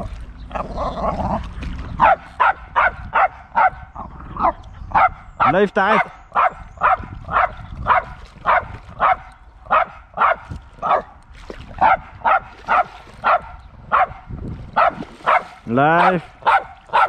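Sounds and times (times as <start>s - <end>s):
dog barking: 2.0s - 11.1s, 11.8s - 17.0s.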